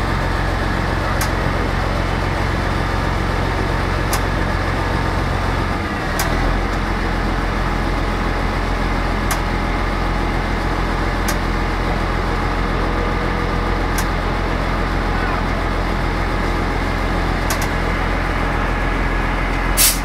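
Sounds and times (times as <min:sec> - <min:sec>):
engine low hum: 0:00.0 - 0:20.0.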